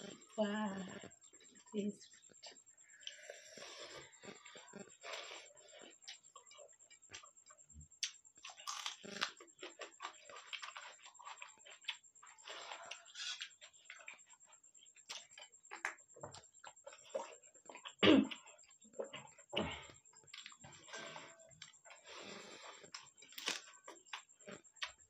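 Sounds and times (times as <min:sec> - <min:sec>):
chewing and lip smacks: 0:08.0 - 0:19.4.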